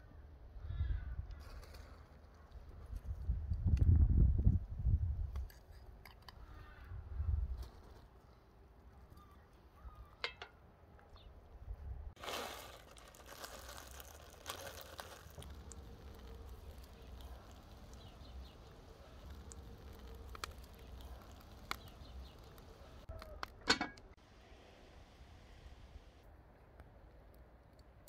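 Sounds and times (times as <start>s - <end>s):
seasoning rustling patters: 12.2s - 23.1s.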